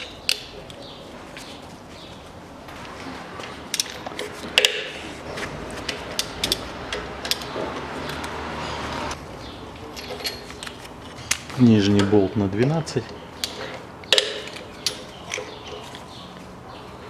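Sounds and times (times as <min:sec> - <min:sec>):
sharp metal clicks: 0:05.9 - 0:08.4, 0:13.4 - 0:15.8.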